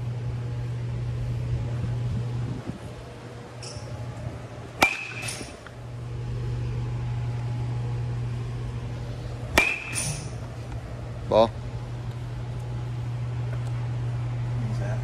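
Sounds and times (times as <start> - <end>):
high ring from bat: 4.8 - 5.5, 9.6 - 10.4
baseball bat hitting ball: 4.8 - 5.7, 9.5 - 10.5.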